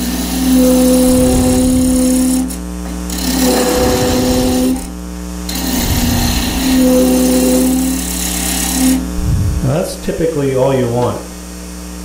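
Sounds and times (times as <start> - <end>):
wood lathe gouge cutting: 0.0 - 9.2.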